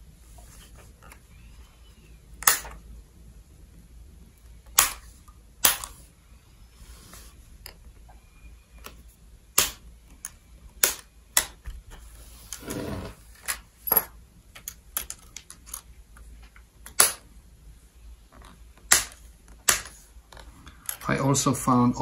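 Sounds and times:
plastic clips clicking and snapping: 9.6s - 11.8s
scraping rub: 12.0s - 13.4s.

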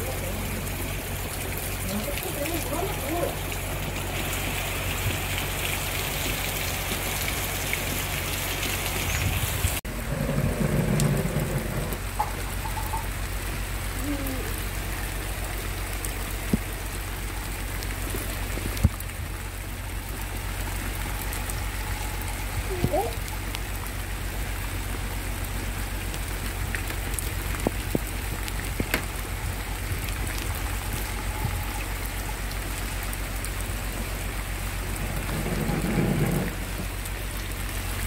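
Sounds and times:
heavy rain on plants: 0.0s - 38.0s.

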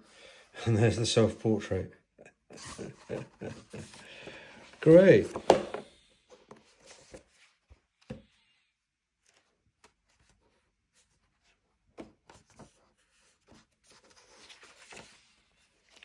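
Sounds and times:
paper pages rustling: 2.7s - 5.6s, 6.4s - 8.4s, 9.1s - 16.0s.

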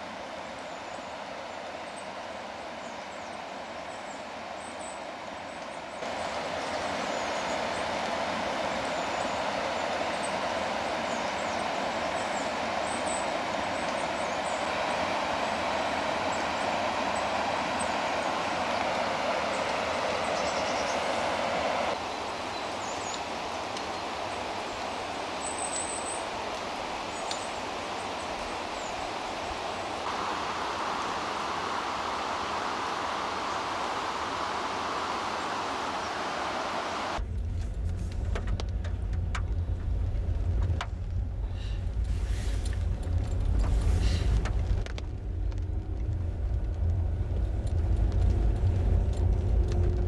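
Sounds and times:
river water rushing: 0.0s - 37.2s.

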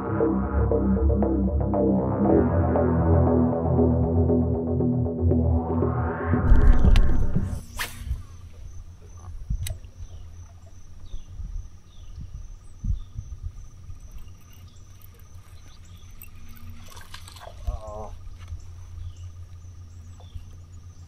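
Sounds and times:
low rumble: 0.0s - 14.1s
insects trilling: 7.6s - 21.0s.

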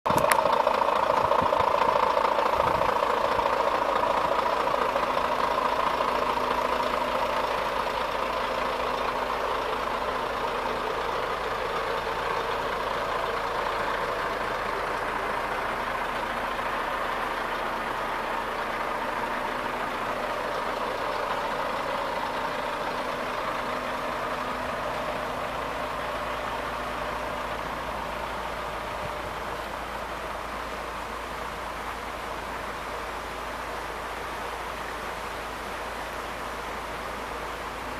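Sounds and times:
diesel engine idling: 0.1s - 37.9s.

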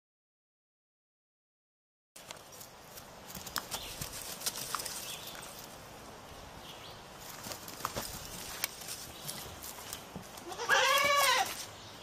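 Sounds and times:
goat hooves tapping on dirt: 2.2s - 5.8s, 7.2s - 11.8s.

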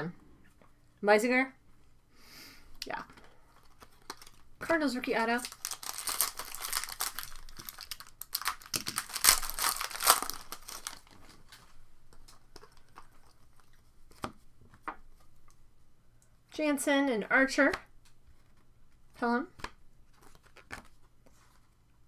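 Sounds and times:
wrapper tearing and crinkling: 3.6s - 4.5s, 5.1s - 11.6s.

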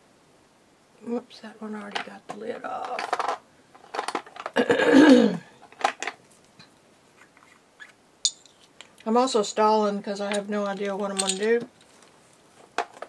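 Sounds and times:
squeaky scrape: 7.1s - 8.0s.

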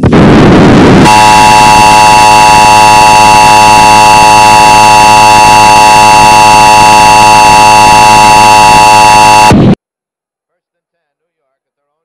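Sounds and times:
loud two-tone alarm: 1.0s - 9.6s.

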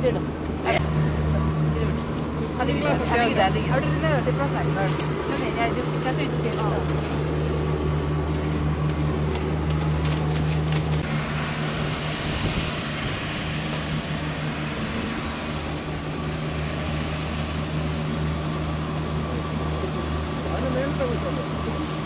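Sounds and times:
riding lawn mower engine humming: 0.0s - 22.0s
paper and plastic wrap crinkling: 8.2s - 11.0s.

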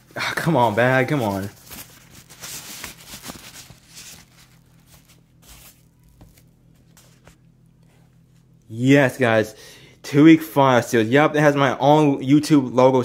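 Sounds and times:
plastic bag rustling: 0.0s - 7.4s.

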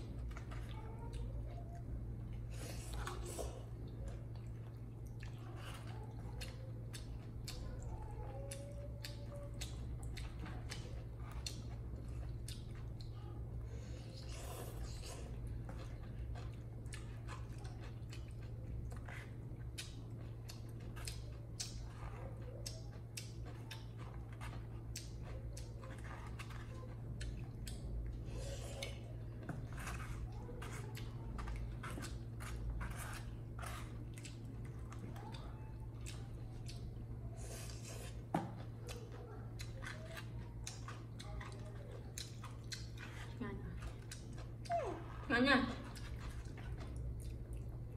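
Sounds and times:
chewing and mouth smacks: 0.0s - 47.9s
steady low hum: 0.0s - 47.9s.

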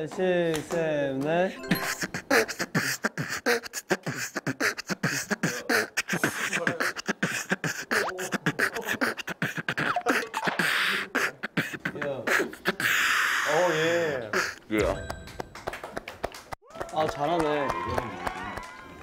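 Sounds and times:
man beatboxing: 1.9s - 14.8s.

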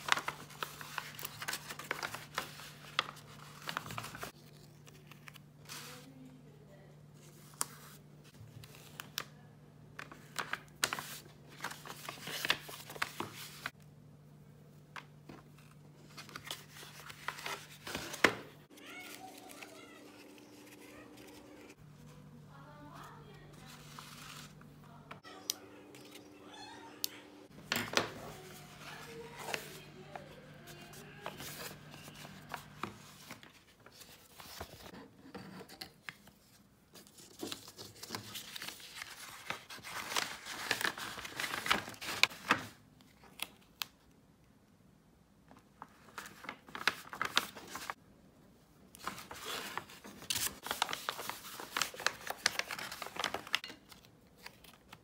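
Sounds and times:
paper rustling and crinkling: 0.0s - 6.2s, 10.0s - 13.8s, 15.0s - 22.2s, 22.9s - 25.2s, 27.5s - 35.0s, 35.6s - 43.9s, 45.8s - 48.0s, 48.9s - 55.0s.

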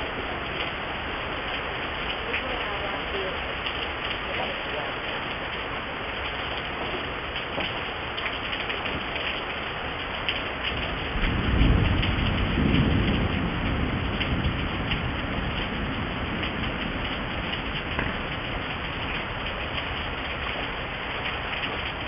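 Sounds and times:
steady rain falling: 0.0s - 22.0s
low rumble of thunder: 5.2s - 22.0s.

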